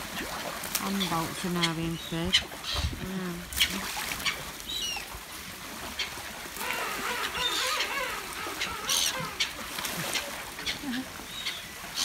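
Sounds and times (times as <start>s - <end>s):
fish splashing into water: 2.3s - 12.0s
harsh wavering bird calls: 6.0s - 12.0s.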